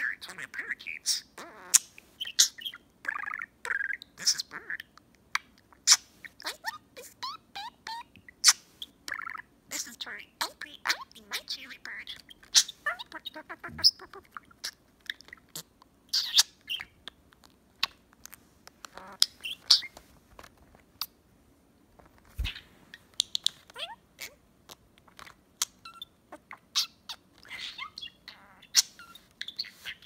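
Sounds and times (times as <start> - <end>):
budgerigar chattering: 7.6 - 17.0.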